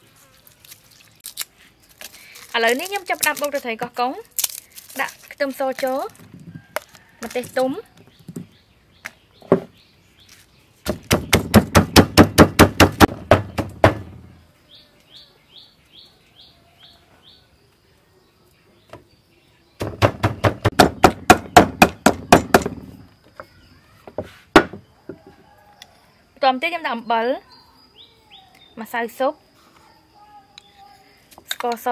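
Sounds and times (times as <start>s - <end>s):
bird chirping: 6.4s - 12.1s, 13.3s - 20.7s, 26.7s - 31.9s
pestle pounding in wooden mortar: 10.9s - 14.3s, 19.8s - 23.0s.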